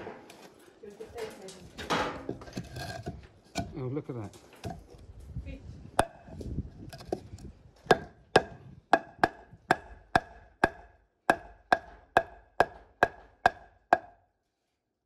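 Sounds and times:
hammer striking wooden pole: 0:06.0 - 0:06.4, 0:07.8 - 0:14.2.

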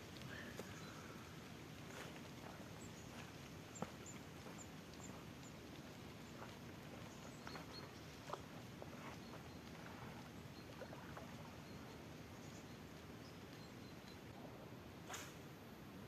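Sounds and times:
low rumble of wind or water: 0:00.0 - 0:16.0
faint high chirps: 0:07.0 - 0:14.4.

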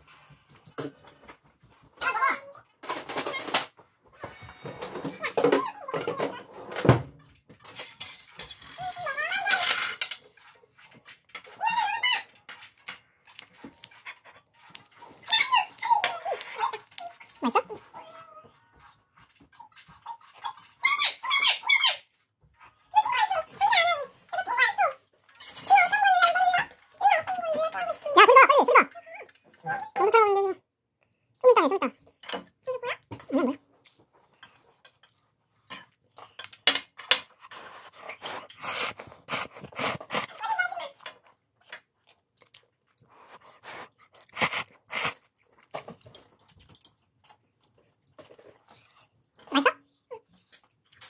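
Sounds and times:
dog whimpering: 0:05.1 - 0:06.5, 0:15.2 - 0:18.6
chewing and slurping noodles: 0:13.1 - 0:20.9, 0:37.3 - 0:51.0.

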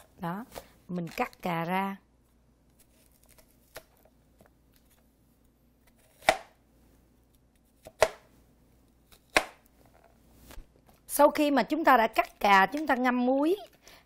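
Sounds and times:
knife chopping on plastic board: 0:06.0 - 0:06.6, 0:07.8 - 0:08.3, 0:09.2 - 0:09.7.

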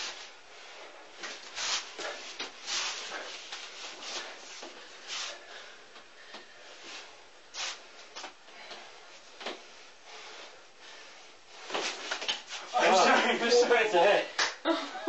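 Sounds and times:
sleeves brushing and slapping: 0:00.0 - 0:05.4, 0:11.5 - 0:12.8.

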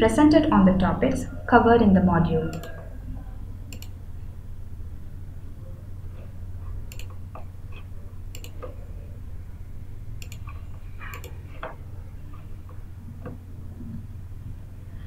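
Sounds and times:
low electrical hum: 0:00.0 - 0:15.0
computer mouse clicks: 0:02.5 - 0:02.8, 0:03.7 - 0:04.0, 0:06.9 - 0:08.8, 0:10.2 - 0:11.8.

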